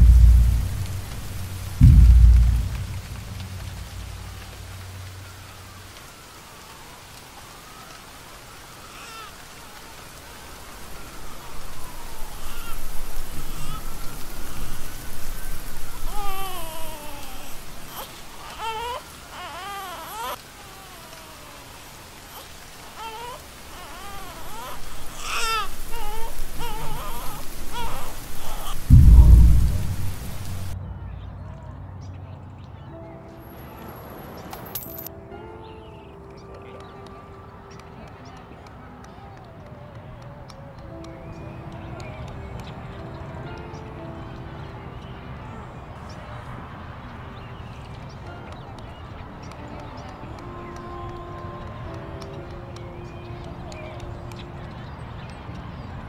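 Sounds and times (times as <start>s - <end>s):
deep boom: 0.0s - 5.0s, 11.6s - 17.5s, 28.5s - 31.5s
low rumble of thunder: 0.0s - 5.8s, 10.8s - 18.0s, 24.5s - 31.6s
rain hissing: 0.0s - 30.8s.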